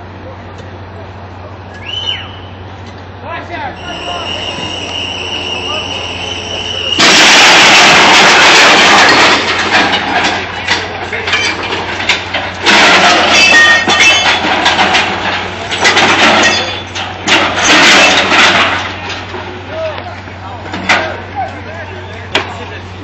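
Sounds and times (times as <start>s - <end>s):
track repair machinery noise: 0.0s - 23.0s
short metallic squeals: 3.8s - 7.4s, 13.0s - 14.4s, 16.4s - 17.0s.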